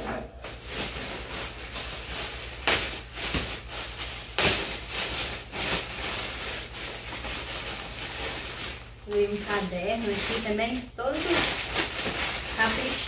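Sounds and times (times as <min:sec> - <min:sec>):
gift packaging rustling: 0:00.4 - 0:13.0.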